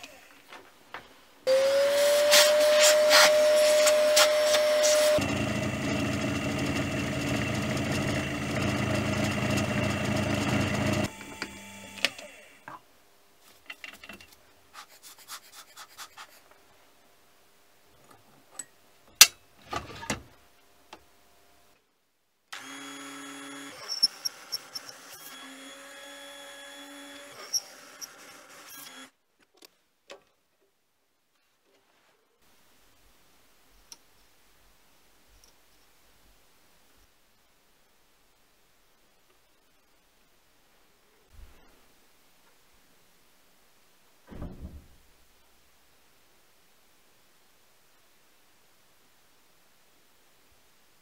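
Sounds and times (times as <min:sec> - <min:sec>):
milling machine spindle cutting: 0:01.5 - 0:12.5, 0:22.6 - 0:29.1
mini lathe running: 0:01.5 - 0:12.6, 0:22.6 - 0:29.1.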